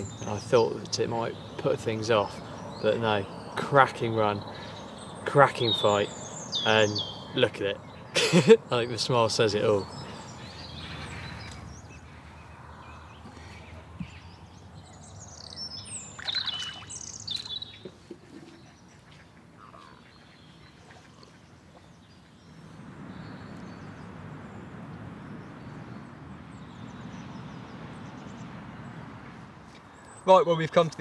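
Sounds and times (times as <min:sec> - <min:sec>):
birds chirping: 0:00.0 - 0:31.0.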